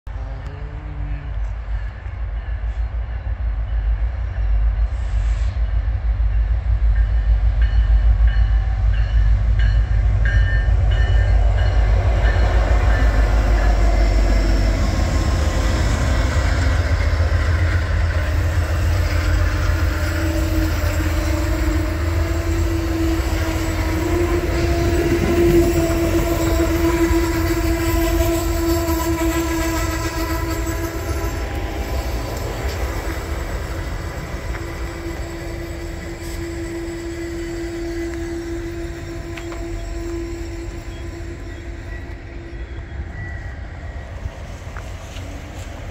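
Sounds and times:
diesel locomotive rumble: 0:00.1 - 0:45.9
train wheels on rails: 0:00.1 - 0:45.9
train horn: 0:08.1 - 0:32.1, 0:33.4 - 0:43.4.

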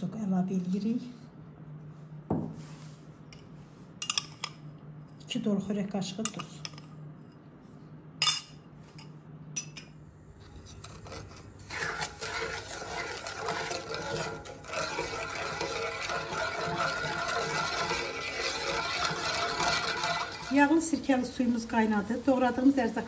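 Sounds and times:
metal spoon clinking on pot: 0:04.0 - 0:04.6, 0:06.2 - 0:06.8, 0:09.6 - 0:09.9
wooden spoon stirring liquid: 0:10.4 - 0:22.3.

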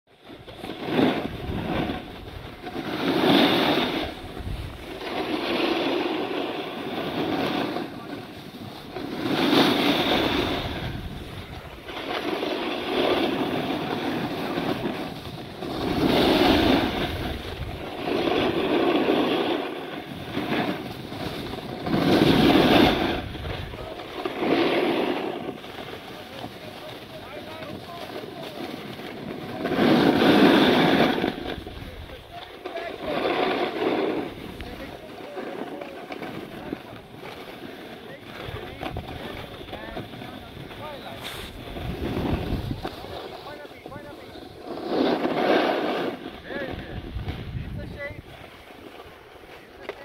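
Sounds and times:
skis scraping on packed snow: 0:00.1 - 0:50.0
wind on microphone: 0:00.4 - 0:25.7, 0:38.3 - 0:48.5.

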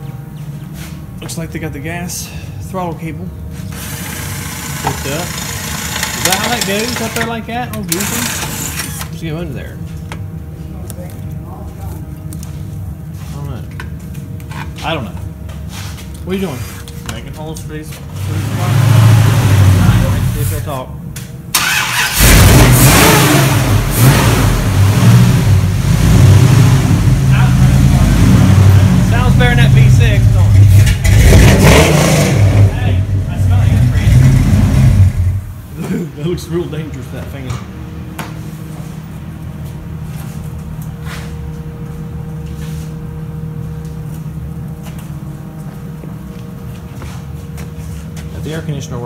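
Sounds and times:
truck engine revving: 0:18.1 - 0:20.6, 0:21.6 - 0:35.6.

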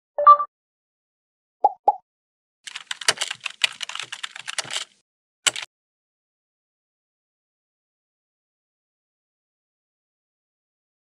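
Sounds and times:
two-tone blip: 0:00.2 - 0:00.5
keyboard key clicks: 0:02.7 - 0:05.7.

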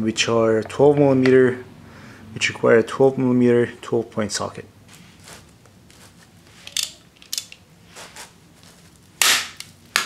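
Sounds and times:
bolt breaking loose crack: 0:06.7 - 0:07.6, 0:09.2 - 0:10.0
socket wrench clicks: 0:06.7 - 0:07.6.

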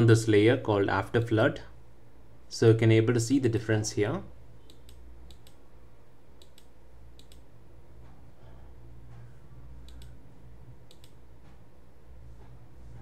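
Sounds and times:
low steady hum: 0:00.0 - 0:13.0
computer mouse clicking: 0:04.6 - 0:05.6, 0:06.4 - 0:07.5, 0:09.8 - 0:10.2, 0:10.9 - 0:11.2.

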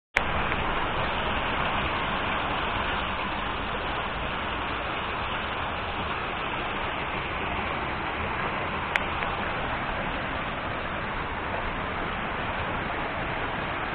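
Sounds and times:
water rushing through a dam: 0:00.2 - 0:13.9.

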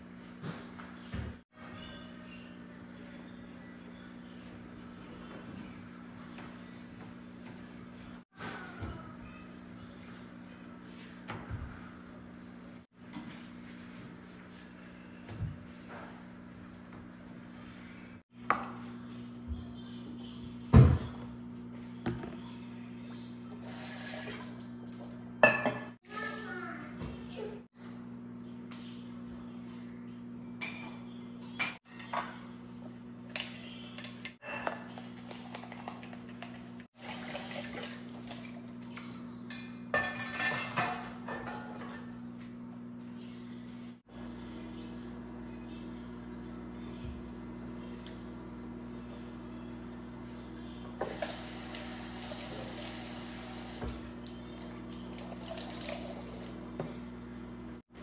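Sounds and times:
tap water running into sink: 0:37.0 - 0:38.5, 0:51.0 - 0:56.6
dishes and cutlery clinking: 0:39.4 - 0:42.2.

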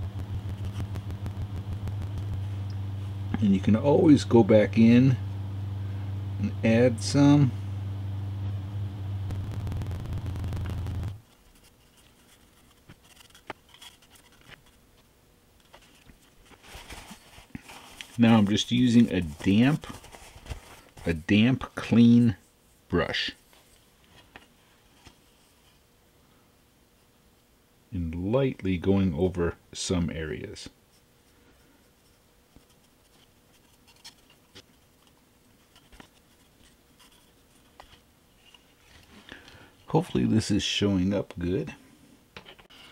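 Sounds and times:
low motor hum: 0:00.0 - 0:11.2
paintbrush scratching on plastic: 0:11.5 - 0:14.8.

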